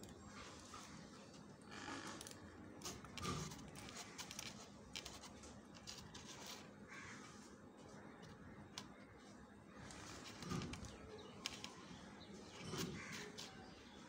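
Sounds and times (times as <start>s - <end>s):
faint bird calls: 6.8s - 14.0s
wire leads clicking and handling: 9.8s - 11.9s.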